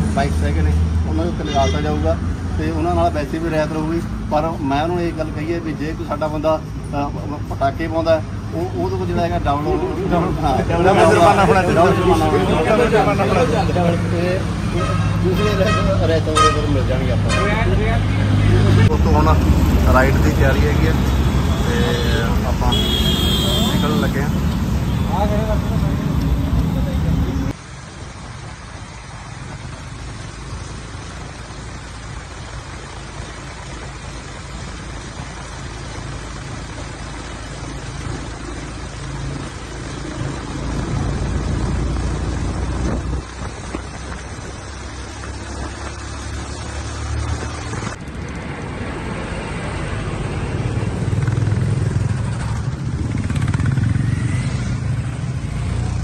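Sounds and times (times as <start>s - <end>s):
motorcycle engines cruising: 0.0s - 56.0s
road noise: 0.0s - 56.0s.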